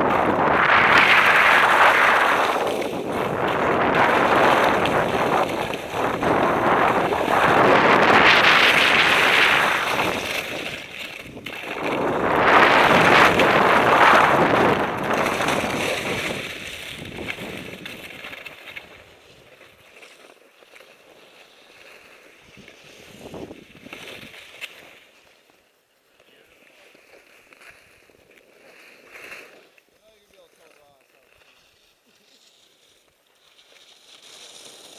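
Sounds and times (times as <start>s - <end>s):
wind on microphone: 0.0s - 18.2s, 22.5s - 24.3s
skis hissing over snow: 0.1s - 34.9s.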